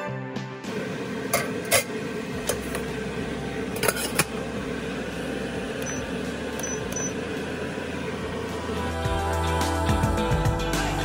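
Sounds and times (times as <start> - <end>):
steady hum: 0.6 - 11.0
metal steamer tray clinking: 1.3 - 2.8, 3.7 - 4.4
short high beeps: 5.8 - 7.2.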